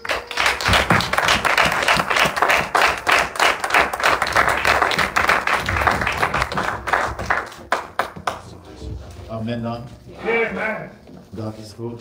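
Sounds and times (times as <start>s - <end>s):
congregation applauding: 0.0s - 8.8s.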